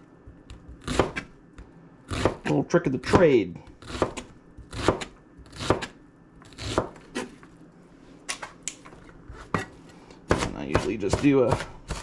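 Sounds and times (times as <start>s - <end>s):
knife chopping on cutting board: 0.3s - 1.3s, 2.1s - 5.9s, 6.5s - 7.4s, 9.3s - 12.0s.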